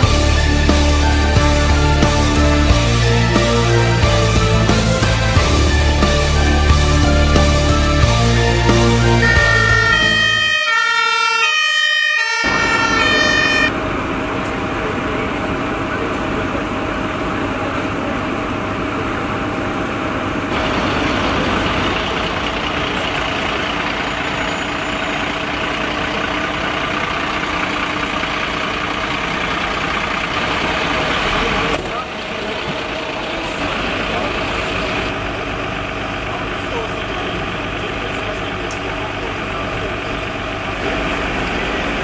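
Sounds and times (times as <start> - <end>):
music: 0.0 - 10.5
diesel engine running: 0.0 - 42.0.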